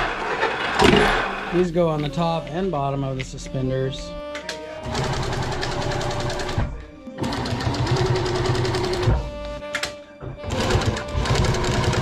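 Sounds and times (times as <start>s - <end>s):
sewing machine stitching: 4.8s - 6.6s, 7.2s - 9.3s, 10.4s - 12.0s.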